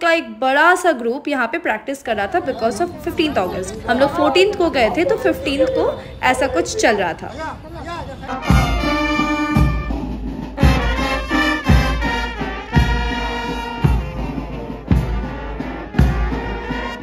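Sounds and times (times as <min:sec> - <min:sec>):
brass band playing: 0:02.1 - 0:07.3, 0:08.2 - 0:17.0
deep drum beat: 0:08.3 - 0:16.7.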